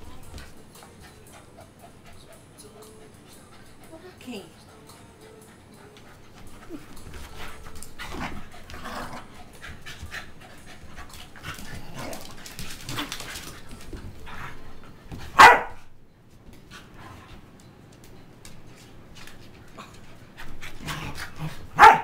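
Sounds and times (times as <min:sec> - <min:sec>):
dogs panting: 0:00.0 - 0:15.7, 0:16.5 - 0:17.8, 0:18.5 - 0:22.0
dogs barking: 0:15.3 - 0:15.9, 0:20.9 - 0:22.0.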